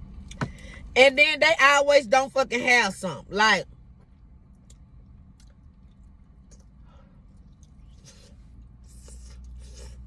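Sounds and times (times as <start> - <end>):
low steady hum: 0.0 - 10.0
chewing and eating sounds: 4.4 - 10.0.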